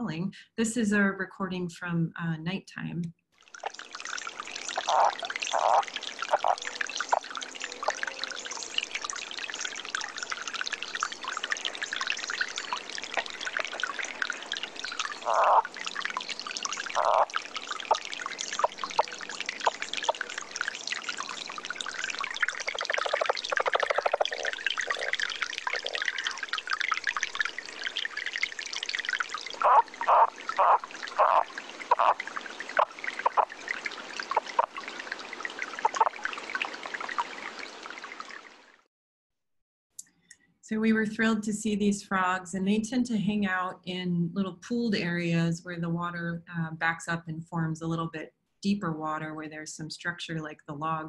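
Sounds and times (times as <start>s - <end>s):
flowing river water: 3.4s - 38.8s
frogs croaking: 3.5s - 38.6s.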